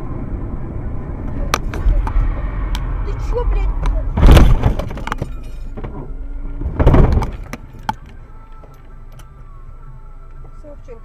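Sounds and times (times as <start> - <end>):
loud low rushes: 0.0 - 5.2
car cabin and road noise: 0.0 - 11.0.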